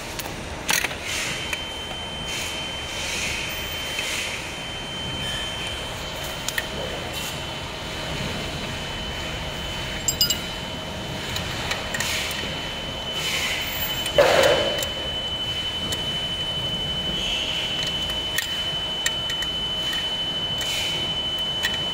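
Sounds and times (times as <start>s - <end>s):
background noise with high tone: 0.0s - 11.3s
wrench and metal hardware clinking: 10.0s - 10.6s.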